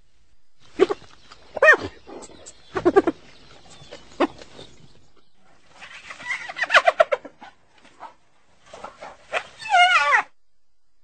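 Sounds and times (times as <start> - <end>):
hyena yelping and cackling: 0.7 - 4.6, 5.7 - 10.4.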